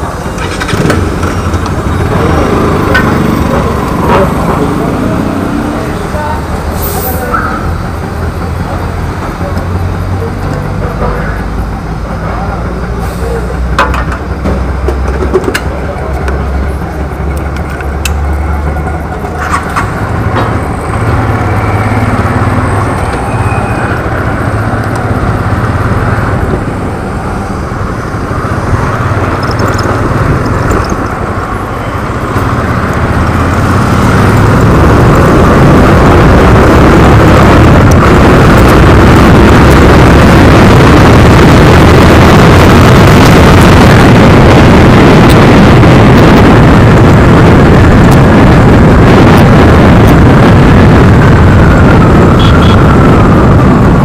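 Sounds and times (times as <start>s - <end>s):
motorcycle engine running: 0.0s - 6.2s, 27.7s - 43.8s
wind rushing over camera: 0.0s - 9.2s, 16.6s - 54.0s.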